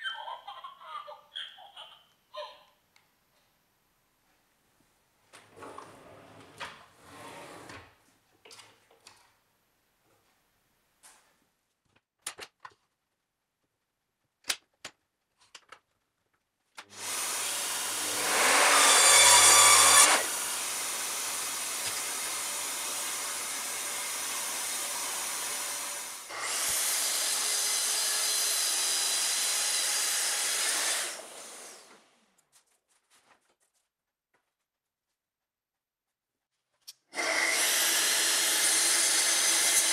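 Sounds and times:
saw blade cutting wood: 16.9s - 31.9s, 37.2s - 39.9s
mitre saw whirring: 16.9s - 32.0s, 37.2s - 39.9s.

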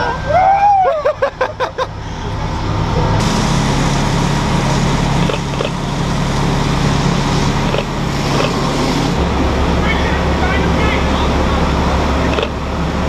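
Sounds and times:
high-pitched whoops: 0.0s - 1.2s
fire engine running: 0.0s - 13.0s
water stream hissing: 3.2s - 12.3s.

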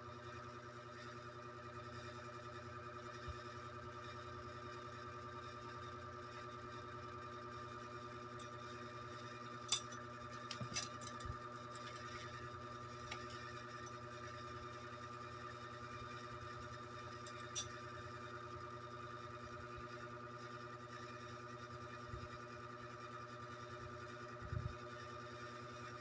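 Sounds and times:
steady hum with high whine: 7.0s - 26.0s.

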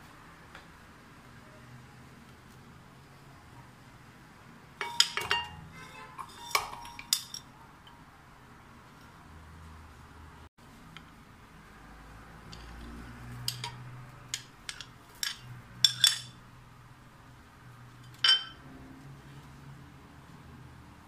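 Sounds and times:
fruit clinking into glass jar: 4.8s - 5.6s, 18.1s - 18.6s.

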